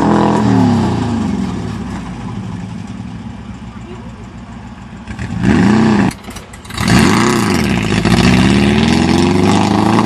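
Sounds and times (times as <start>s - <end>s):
car engine revving: 4.7s - 10.0s.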